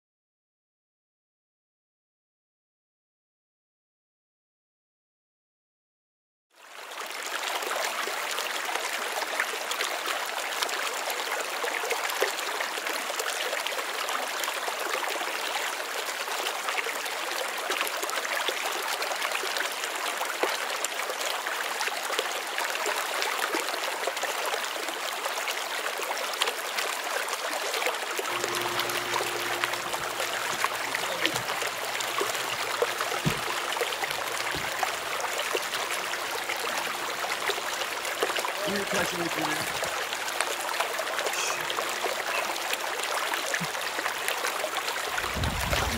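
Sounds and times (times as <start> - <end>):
running water rushing: 6.7 - 45.9
low steady hum: 28.3 - 42.6.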